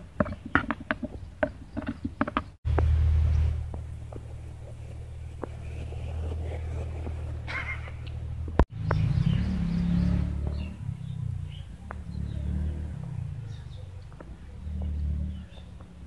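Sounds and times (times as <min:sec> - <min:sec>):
low rumble: 0:02.7 - 0:13.8.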